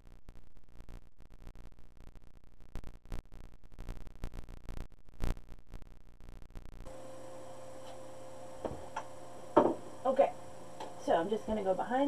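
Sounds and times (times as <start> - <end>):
steady electrical hum: 6.6 - 12.0.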